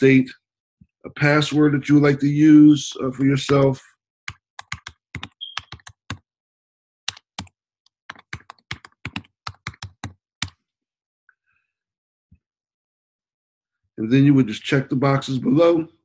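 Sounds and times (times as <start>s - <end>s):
typing on computer keyboard: 4.3s - 6.3s, 7.1s - 10.6s.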